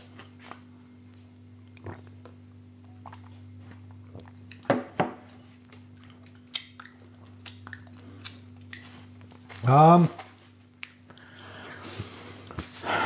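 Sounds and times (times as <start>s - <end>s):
man swallowing and lip smacking: 1.6s - 4.7s, 5.7s - 9.4s.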